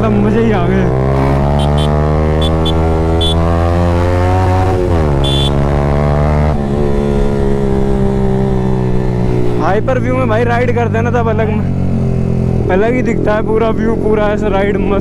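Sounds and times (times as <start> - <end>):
motorcycle engine running: 0.0 - 9.7.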